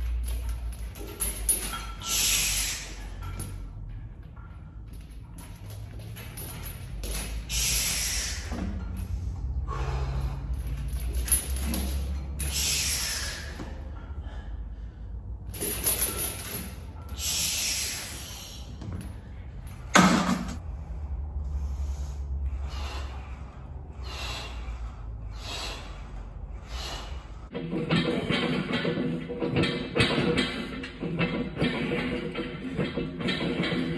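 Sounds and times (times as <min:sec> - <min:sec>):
man breathing forcefully: 0:07.3 - 0:15.6, 0:20.6 - 0:27.6.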